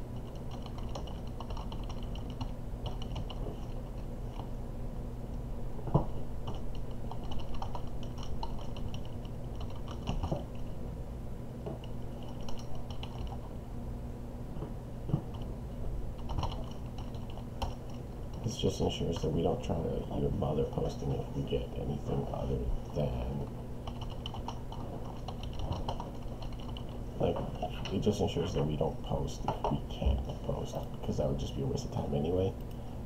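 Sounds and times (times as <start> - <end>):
low steady hum: 0.0 - 33.0
computer keyboard typing: 0.2 - 4.4, 6.4 - 10.7, 11.8 - 13.4, 16.2 - 18.4, 23.8 - 27.0.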